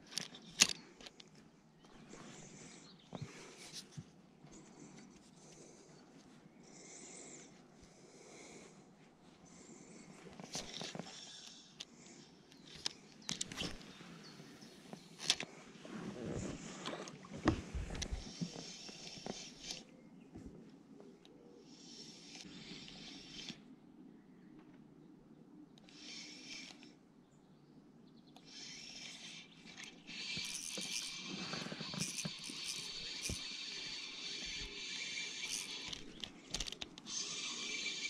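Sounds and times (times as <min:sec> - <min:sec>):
fishing reel whirring: 0:18.1 - 0:19.8, 0:21.7 - 0:23.6, 0:25.9 - 0:26.8, 0:28.4 - 0:38.0.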